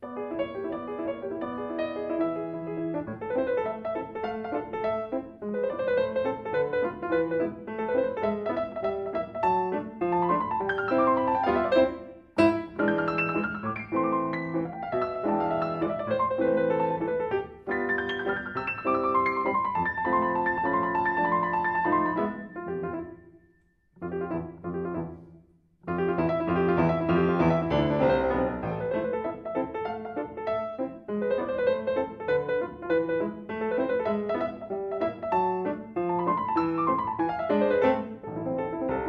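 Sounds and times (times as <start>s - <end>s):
grand piano playing: 0.0s - 39.0s.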